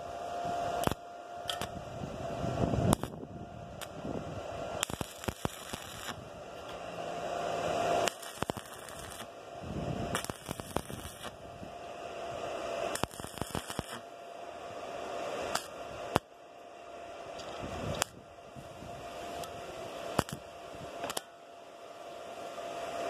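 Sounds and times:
arc welding crackling hiss: 0.0s - 16.3s, 17.2s - 21.3s
sharp welding cracks: 0.8s - 1.8s, 2.9s - 3.2s, 4.8s - 6.2s, 7.9s - 9.4s, 10.1s - 11.4s, 12.9s - 14.1s, 15.5s - 16.3s, 18.0s - 18.2s, 20.1s - 21.3s.

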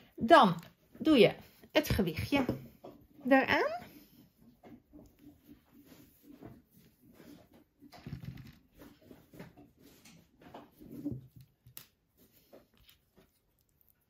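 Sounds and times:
hands rustling yarn: 4.8s - 14.0s.

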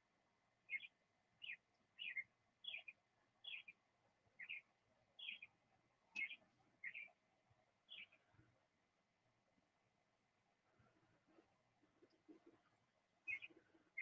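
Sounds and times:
faint bird chirping: 0.7s - 3.8s, 4.4s - 7.2s, 7.8s - 8.5s, 12.1s - 14.0s.

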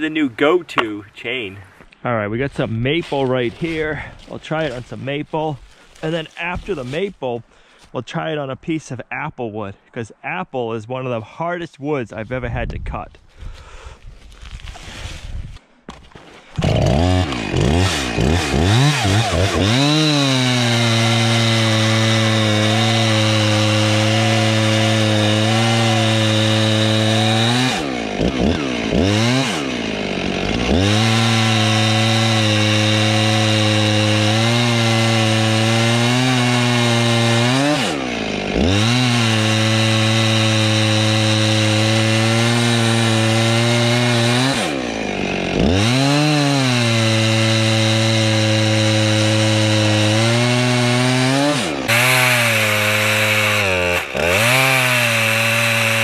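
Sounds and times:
chainsaw cutting log: 5.7s - 7.1s, 15.9s - 56.0s.

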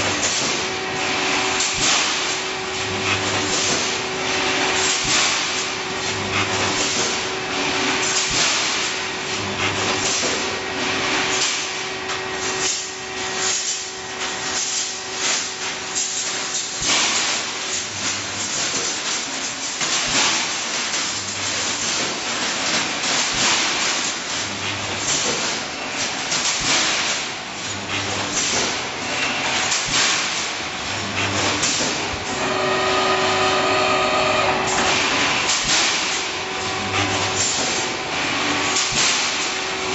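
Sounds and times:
machine clanks and knocks: 0.0s - 32.4s, 34.6s - 39.9s
welding machine hiss: 0.0s - 39.9s
low machine hum: 32.1s - 38.8s.

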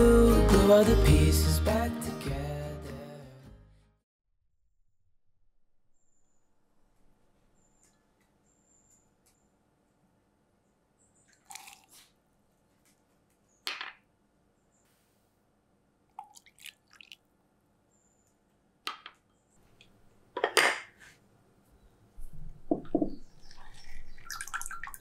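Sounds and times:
liquid pouring into glass cup: 11.4s - 12.0s, 16.2s - 17.2s, 23.2s - 25.0s
water dripping: 16.1s - 17.3s, 22.2s - 25.0s.

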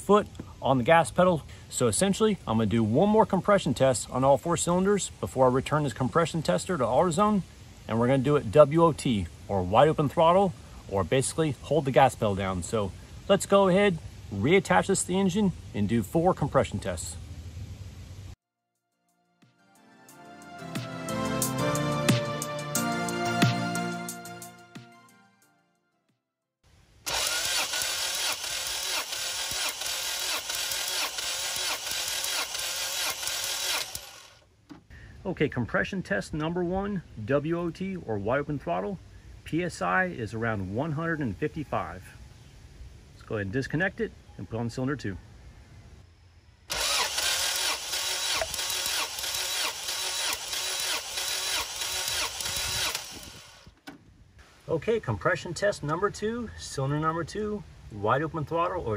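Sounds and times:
music: 18.8s - 26.2s
engine cranking without firing: 27.1s - 34.9s, 46.7s - 54.0s.

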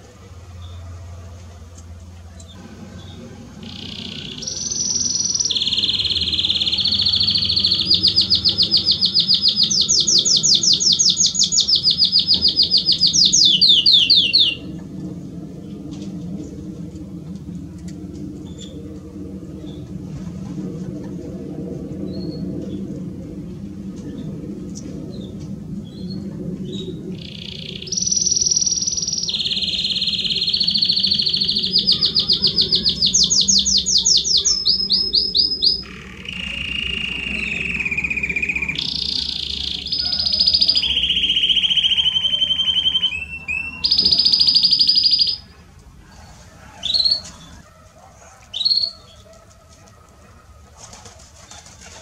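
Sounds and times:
bird chirps: 2.4s - 14.7s, 25.2s - 45.6s, 46.8s - 47.6s, 48.5s - 49.2s
canary singing trills: 2.4s - 14.9s, 25.1s - 47.7s, 48.3s - 49.2s.

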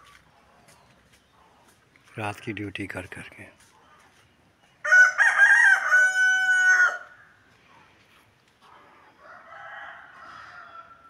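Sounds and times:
rooster crowing: 4.8s - 7.3s, 9.2s - 11.0s.

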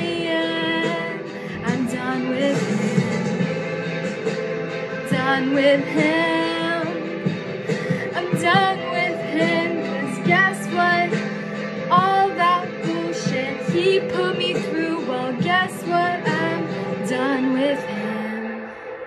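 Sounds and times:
woman singing: 0.0s - 3.6s, 5.0s - 18.8s
instrumental backing track: 0.0s - 19.0s.

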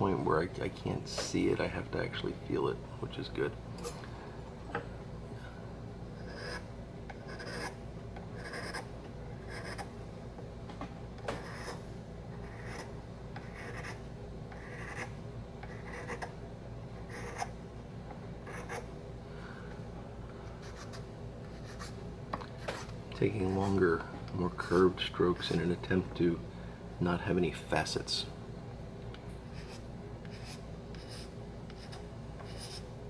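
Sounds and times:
hand file scraping: 7.3s - 7.8s, 29.6s - 32.8s.

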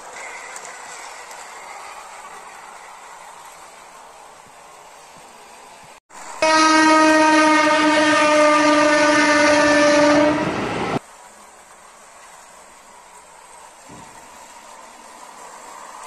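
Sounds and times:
train horn blast: 6.4s - 11.0s.

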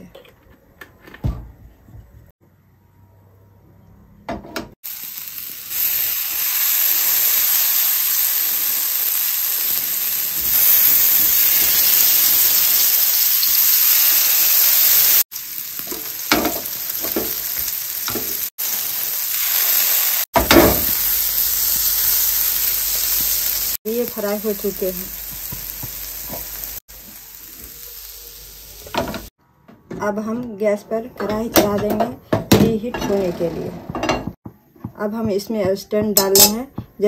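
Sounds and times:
food sizzling in hot oil: 4.8s - 29.3s.

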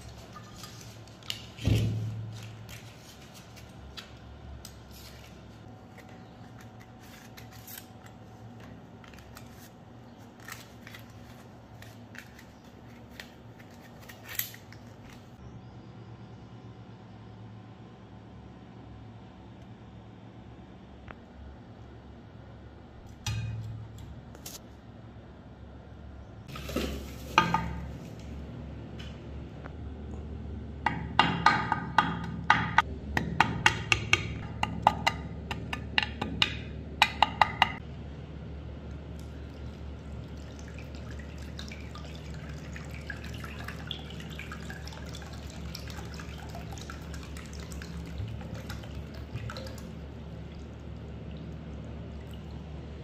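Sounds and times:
water pouring into glass dish: 39.4s - 51.5s.

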